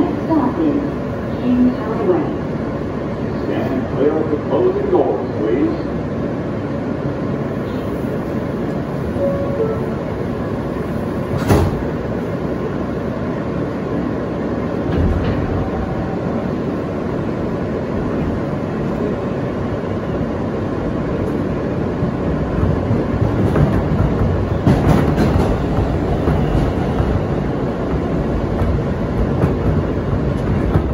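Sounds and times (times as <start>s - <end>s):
subway car rumbling on rails: 0.0s - 30.9s.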